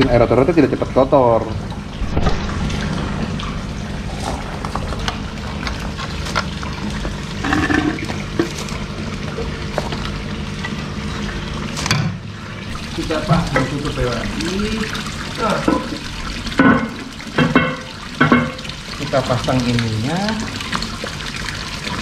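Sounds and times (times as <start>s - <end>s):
low hum: 1.6s - 7.8s
waterfall splashing into pond: 1.9s - 22.0s.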